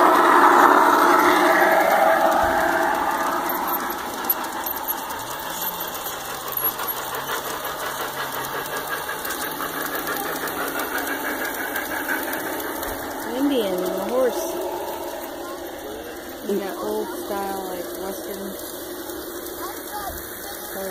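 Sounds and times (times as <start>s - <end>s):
model train clattering: 0.0s - 20.9s.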